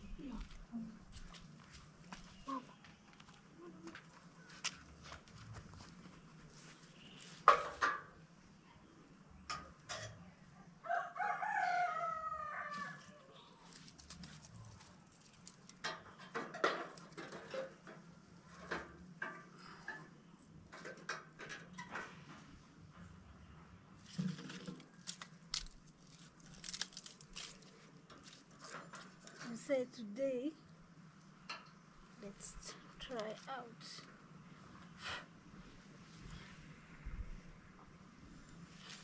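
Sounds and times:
rooster crowing: 10.8 - 13.6
dry sticks snapping: 24.4 - 28.4.

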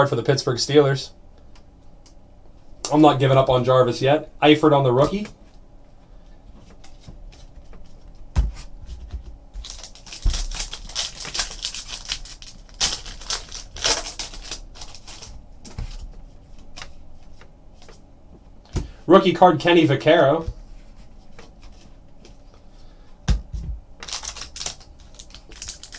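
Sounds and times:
foil wrapper crinkling: 9.6 - 16.1, 24.0 - 25.9.

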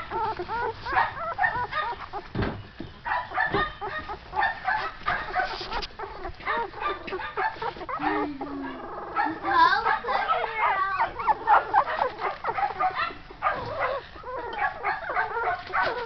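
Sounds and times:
puppies squealing and yipping: 0.0 - 16.0.

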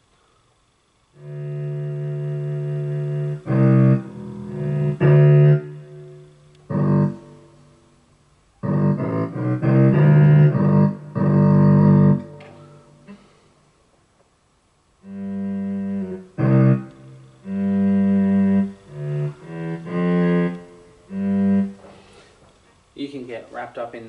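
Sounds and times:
synthesized orchestral guitar notes: 1.2 - 8.0, 8.6 - 13.2, 15.0 - 22.0.

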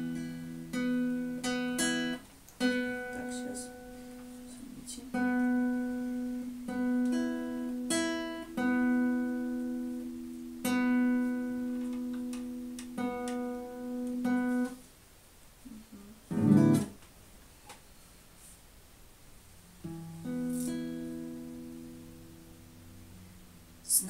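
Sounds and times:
guitar strings plucked: 5.1 - 14.8, 19.8 - 23.1.

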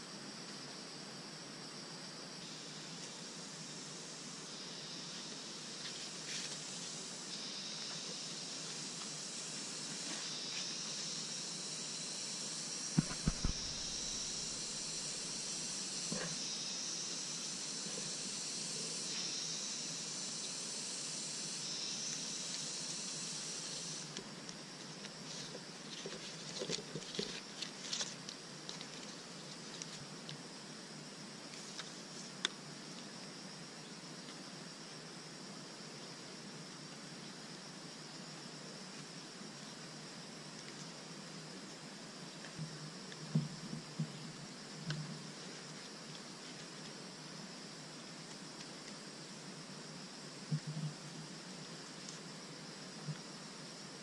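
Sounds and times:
steady high hiss: 0.0 - 54.0
dull thumps: 13.0 - 14.6
bark splitting and peeling: 13.0 - 14.9.

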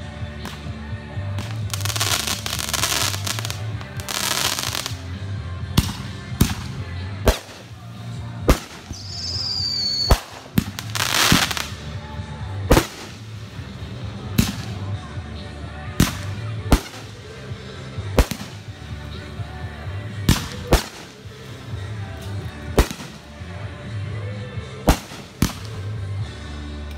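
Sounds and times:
fireworks hissing: 1.4 - 5.0, 8.6 - 11.9
fireworks bangs: 8.5 - 11.8
descending firework whistle: 8.9 - 10.4.

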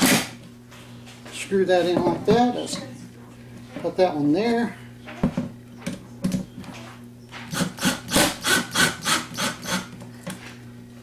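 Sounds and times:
cordless drill driving screw into wood: 7.5 - 9.9.

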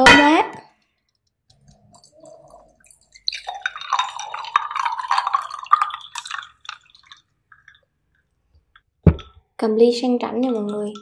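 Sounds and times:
liquid pouring into a glass: 1.5 - 8.3.

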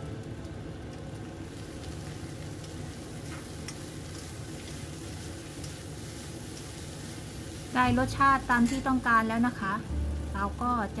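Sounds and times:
noodles sizzling in a wok: 0.0 - 11.0
utensils tapping a pan: 8.5 - 9.0.

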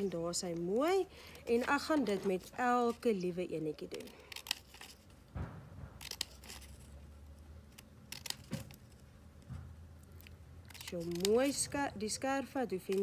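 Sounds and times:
paper rustling: 0.0 - 5.2, 6.0 - 7.0, 10.7 - 11.8
scissors snipping paper: 3.8 - 5.0, 6.0 - 6.9, 7.7 - 8.8, 10.7 - 13.0.

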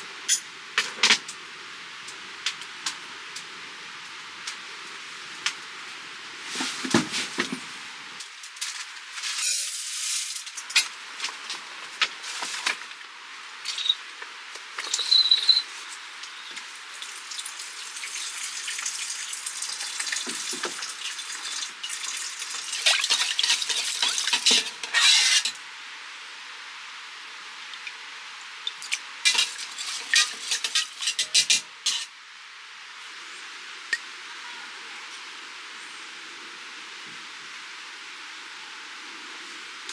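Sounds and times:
water swishing in a pot: 16.8 - 25.5, 29.2 - 32.1.

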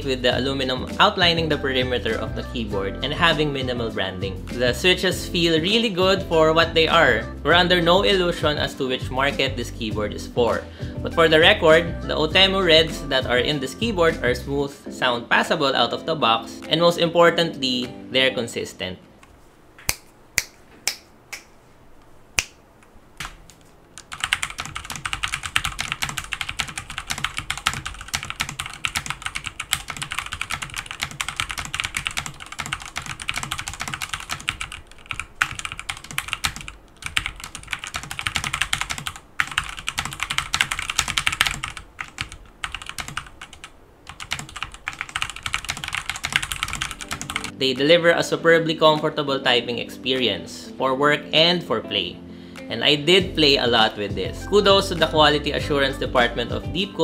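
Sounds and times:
mechanical keyboard typing: 24.0 - 47.6.

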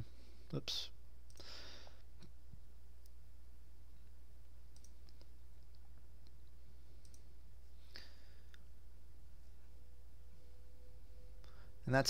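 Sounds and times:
low electrical hum: 0.0 - 12.0
computer mouse clicks: 4.7 - 7.3.

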